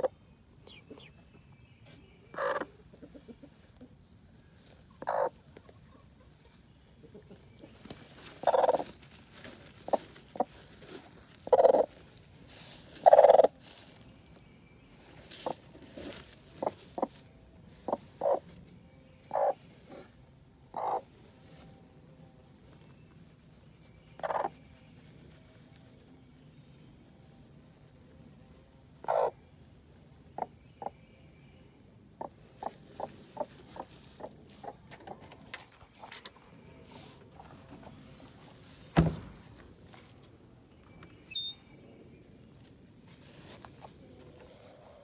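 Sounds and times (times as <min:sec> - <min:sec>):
hen clucking: 0:02.3 - 0:04.0, 0:04.9 - 0:09.0, 0:09.8 - 0:10.6, 0:11.4 - 0:12.0, 0:13.0 - 0:13.5, 0:15.3 - 0:17.2, 0:17.8 - 0:18.5, 0:19.2 - 0:20.0, 0:20.7 - 0:21.1, 0:24.2 - 0:24.6, 0:29.0 - 0:29.4, 0:30.3 - 0:31.0, 0:32.1 - 0:35.2.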